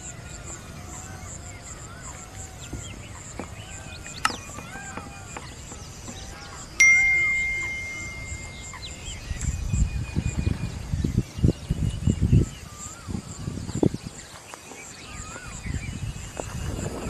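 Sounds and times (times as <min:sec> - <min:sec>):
birds chirping: 0:00.0 - 0:17.0
insect pulsing call: 0:00.0 - 0:17.0
notification bell ding: 0:06.8 - 0:08.9.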